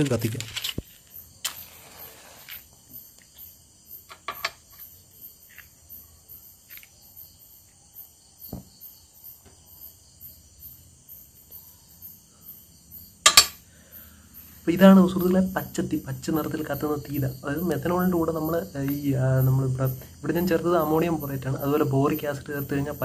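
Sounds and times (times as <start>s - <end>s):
crickets chirping: 0.0s - 23.0s
low thump: 8.5s - 8.7s.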